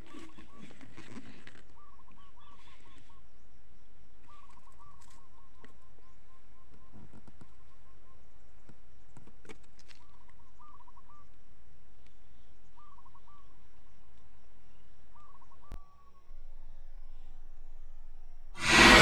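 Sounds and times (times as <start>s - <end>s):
bird calling: 0.0s - 3.2s, 4.2s - 8.2s, 10.0s - 11.4s, 12.7s - 13.6s, 14.7s - 16.3s.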